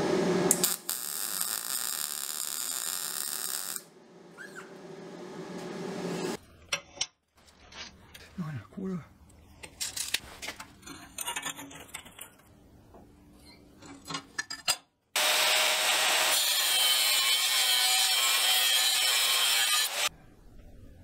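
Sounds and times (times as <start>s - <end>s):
angle grinder cutting steel: 15.2s - 20.1s.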